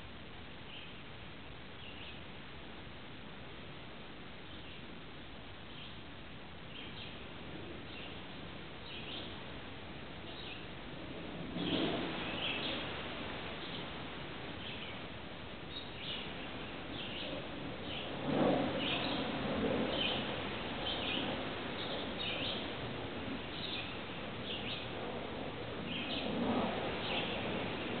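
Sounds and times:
steady outdoor hiss: 0:00.0 - 0:28.0
bird chirping: 0:06.7 - 0:07.2, 0:08.8 - 0:09.4.

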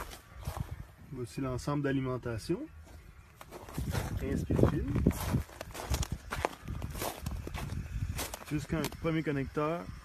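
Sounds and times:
footsteps in snow: 0:00.0 - 0:01.0, 0:02.7 - 0:09.1.

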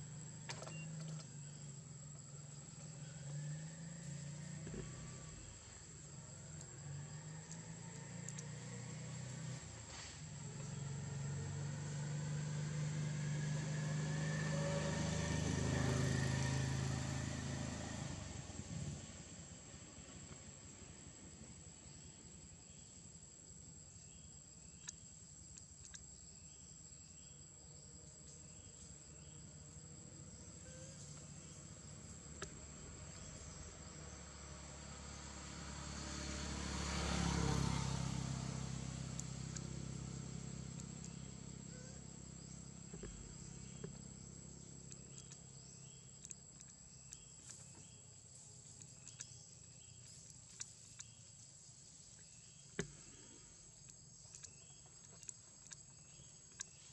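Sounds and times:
insects droning: 0:00.0 - 0:56.9
faint clicks: 0:07.4 - 0:08.5.

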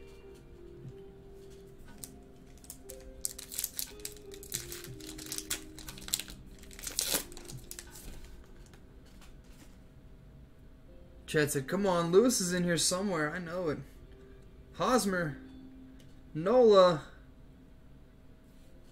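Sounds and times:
soft background music: 0:00.0 - 0:18.9
foil wrapper crinkling and tearing: 0:01.9 - 0:08.4.

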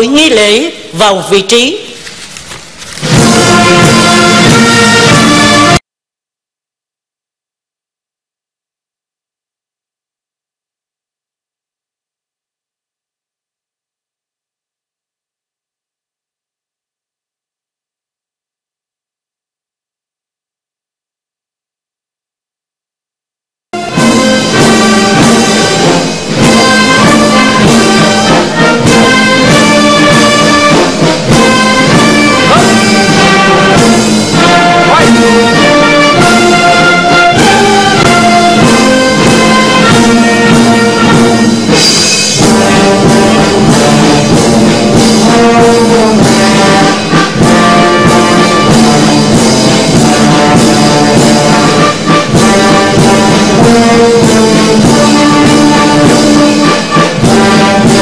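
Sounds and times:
brass band playing: 0:02.0 - 0:05.8, 0:23.8 - 0:58.0.

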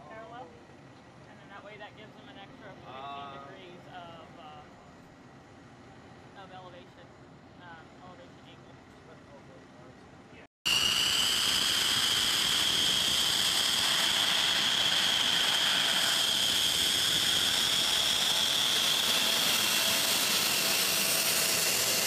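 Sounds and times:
jet engine whine: 0:10.7 - 0:22.0.

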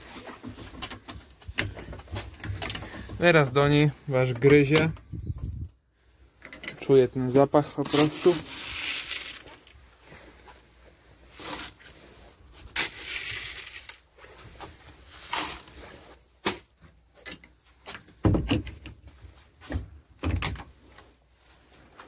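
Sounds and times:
knocks and clicks on wooden hutch: 0:18.2 - 0:19.0.

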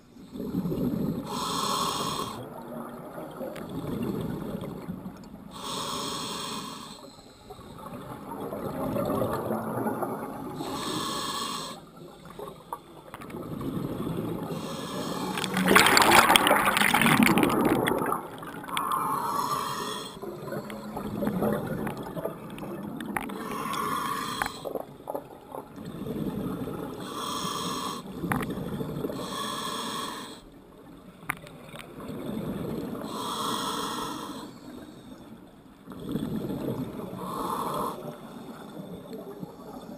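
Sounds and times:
diver breathing through regulator: 0:00.2 - 0:02.5, 0:05.5 - 0:07.9, 0:10.6 - 0:12.9, 0:14.4 - 0:21.5, 0:23.3 - 0:24.8, 0:27.0 - 0:28.2, 0:29.0 - 0:30.5, 0:33.0 - 0:35.3, 0:36.0 - 0:39.8
bubbling exhales: 0:13.5 - 0:24.7.

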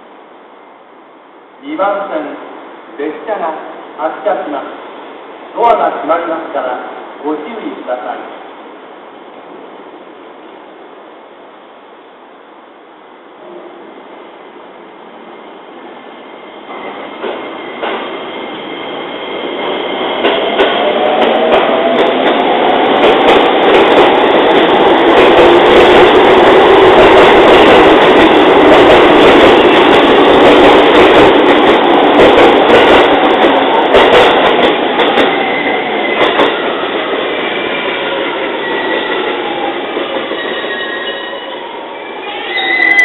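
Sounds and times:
train wheels clacking on rails: 0:16.7 - 0:41.7.

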